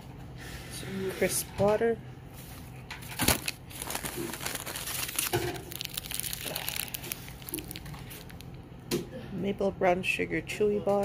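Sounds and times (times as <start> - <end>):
paper bag rustling: 3.0 - 8.5
plastic wrapper crinkling: 3.0 - 8.6.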